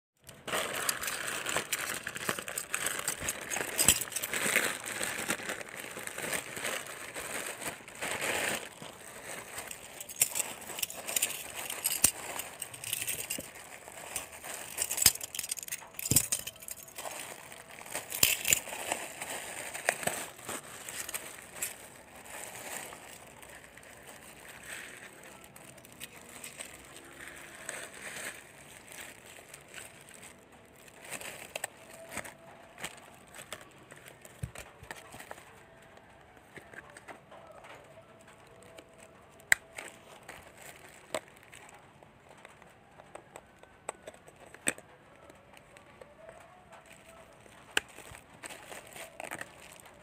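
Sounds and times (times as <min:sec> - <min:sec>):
plastic bag crinkling: 0:00.2 - 0:50.0
hard plastic parts clicking: 0:08.5 - 0:26.8.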